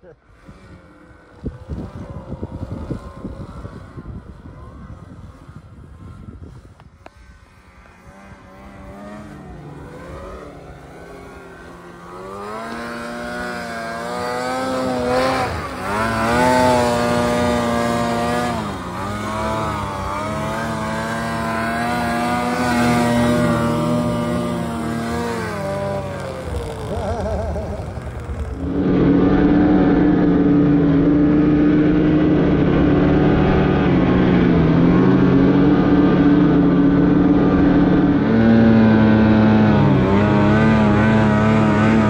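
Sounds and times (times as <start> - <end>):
snowmobile engine revving: 0.0 - 42.0.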